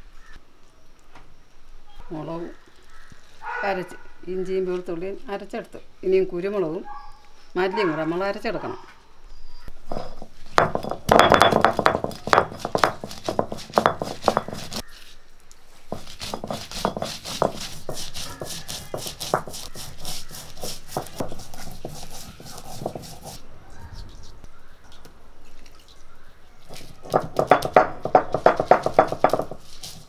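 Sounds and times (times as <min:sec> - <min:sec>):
stone grinding spices: 0:09.9 - 0:14.9, 0:15.9 - 0:23.4, 0:26.7 - 0:30.0.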